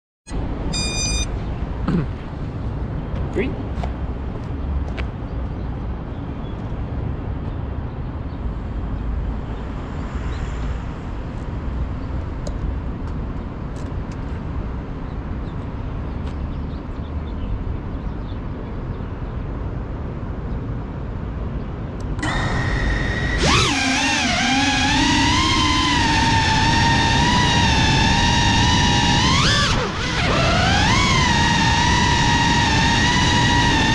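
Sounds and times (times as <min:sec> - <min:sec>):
drone motors whining: 0:00.6 - 0:01.4, 0:22.0 - 0:33.9.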